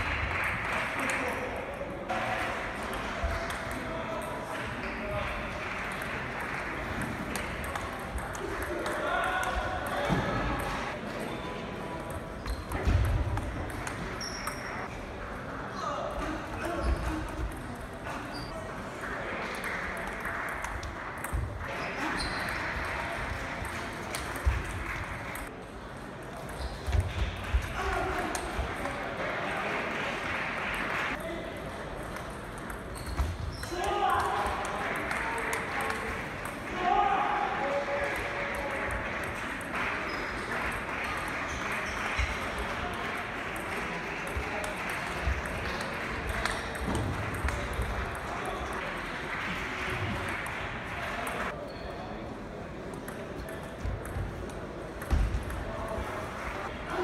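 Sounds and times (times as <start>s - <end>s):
background voices in a hall: 0.0s - 57.0s
table tennis balls clicking: 5.8s - 10.7s, 12.0s - 14.9s, 32.0s - 33.4s.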